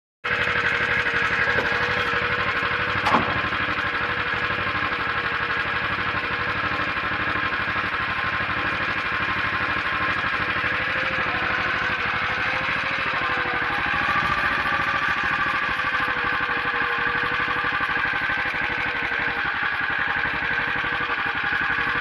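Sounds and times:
small engine idling: 0.2s - 22.0s
short knock: 3.0s - 3.5s.

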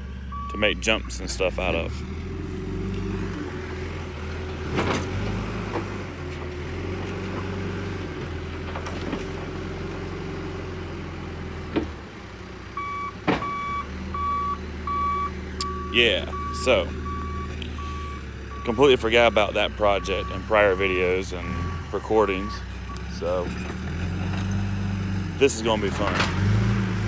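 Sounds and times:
reverse alarm beeping: 0.3s - 1.3s, 12.8s - 23.1s.

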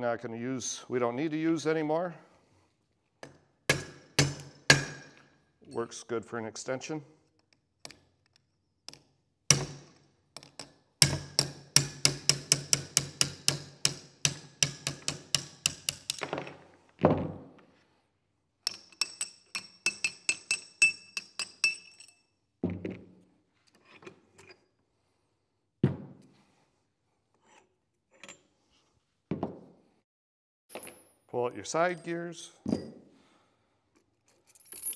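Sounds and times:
hammer striking metal punch: 3.7s - 5.3s, 9.5s - 10.0s, 11.0s - 16.2s.

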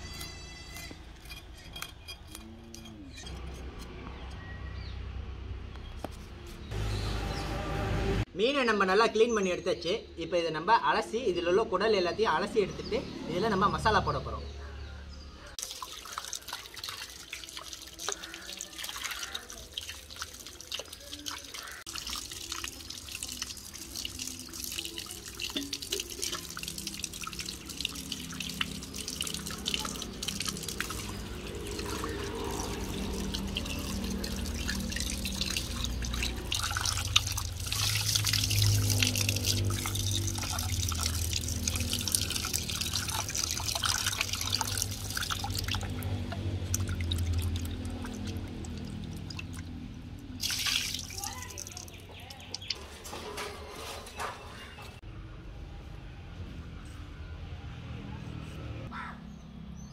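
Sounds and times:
water running from a tap: 15.6s - 52.8s
water splashing into a bowl: 15.6s - 54.0s.

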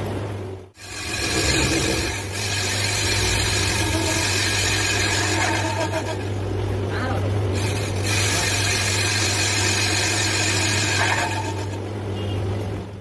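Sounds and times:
cutting tool hissing: 0.8s - 6.4s, 7.6s - 11.8s
metal lathe humming: 0.8s - 11.8s.

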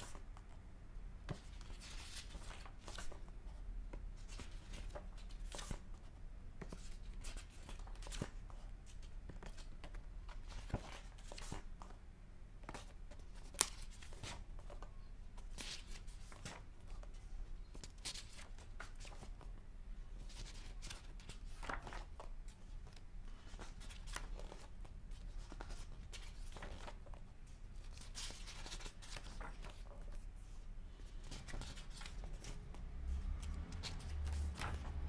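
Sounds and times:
book pages turning: 1.3s - 3.3s, 20.2s - 27.2s, 27.8s - 30.3s, 31.0s - 35.0s.

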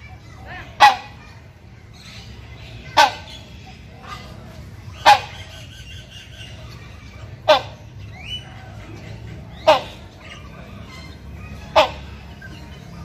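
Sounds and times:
hornbill honking calls: 0.7s - 1.2s, 2.7s - 6.6s, 7.3s - 8.7s, 9.4s - 12.6s.

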